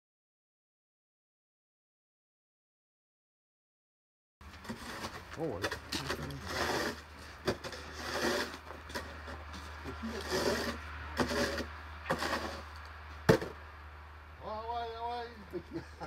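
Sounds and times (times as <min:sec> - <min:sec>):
snow shovel scraping snow: 0:04.5 - 0:13.5
sharp knocks: 0:13.3 - 0:13.6.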